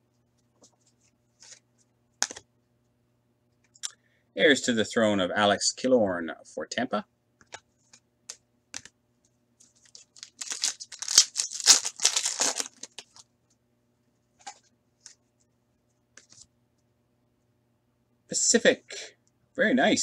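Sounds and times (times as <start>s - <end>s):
foil crinkling: 9.8s - 13.2s
foil card pack tearing: 9.9s - 13.2s.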